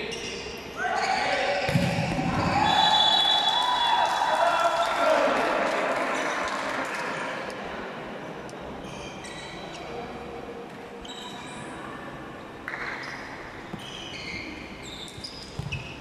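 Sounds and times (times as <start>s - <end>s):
sneaker squeaks on court: 11.0s - 11.7s, 12.7s - 16.0s.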